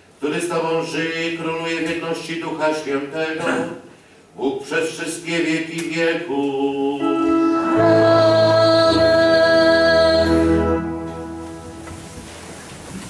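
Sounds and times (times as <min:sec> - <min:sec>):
choir chanting: 0:06.3 - 0:09.4
organ chord: 0:06.8 - 0:12.6.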